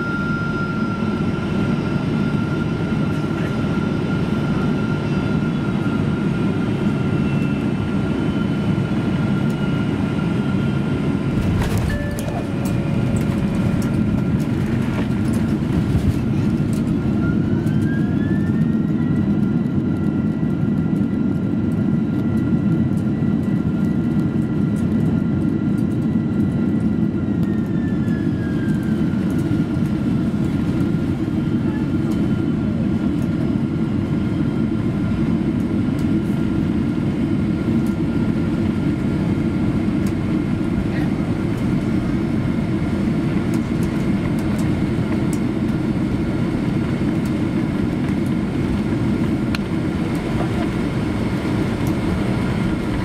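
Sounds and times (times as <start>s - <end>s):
jet engine whine: 0.0s - 53.0s
low cabin rumble: 10.5s - 25.1s, 25.7s - 53.0s.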